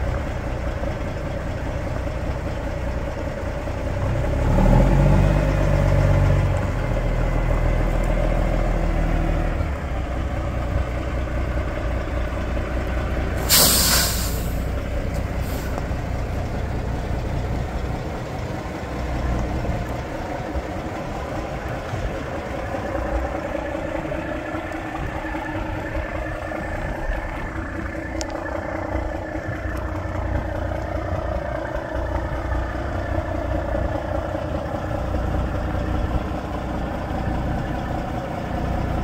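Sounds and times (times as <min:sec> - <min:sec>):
diesel truck engine idling: 0:00.0 - 0:39.0
air brake hiss: 0:13.4 - 0:14.7, 0:15.4 - 0:15.8.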